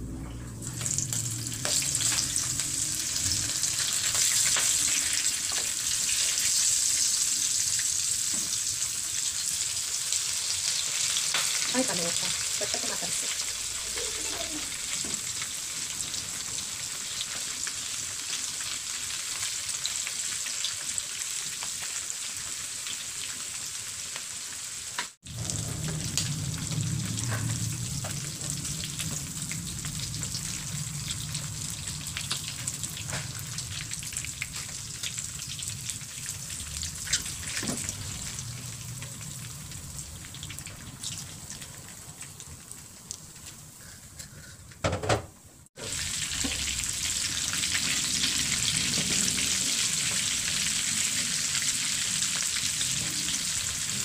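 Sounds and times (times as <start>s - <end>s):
low hum: 0.0s - 5.4s, 25.3s - 34.6s
shrimp sizzling in hot oil: 0.6s - 43.9s, 45.8s - 54.0s.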